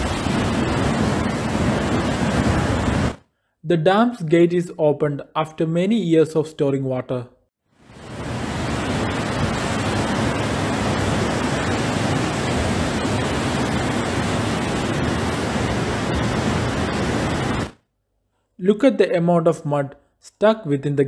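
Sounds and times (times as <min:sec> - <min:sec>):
muddy water rushing torrent: 0:00.0 - 0:03.2, 0:07.8 - 0:17.7.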